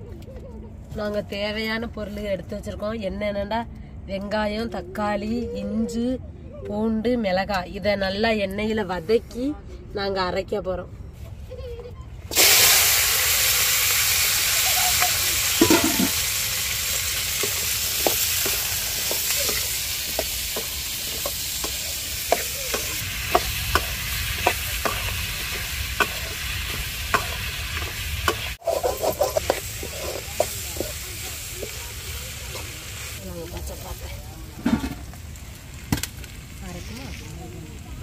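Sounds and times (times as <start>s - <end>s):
vegetables sizzling in hot oil: 12.3s - 38.0s.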